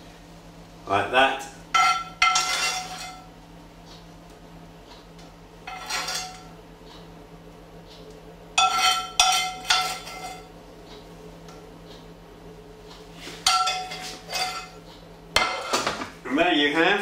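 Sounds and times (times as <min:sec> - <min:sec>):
metal spoon scraping frying pan: 0:01.8 - 0:03.2, 0:05.7 - 0:06.4, 0:08.6 - 0:10.5, 0:13.5 - 0:14.8.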